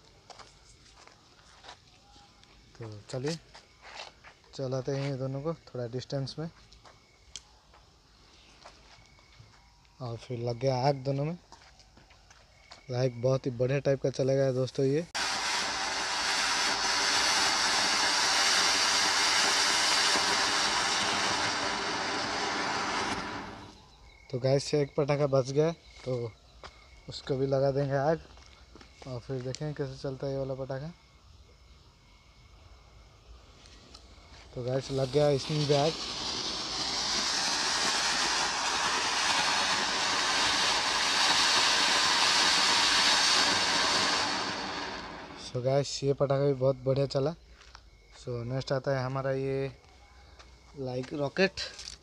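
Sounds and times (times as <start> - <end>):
fountain firework hissing: 15.0 - 23.8, 34.5 - 45.6.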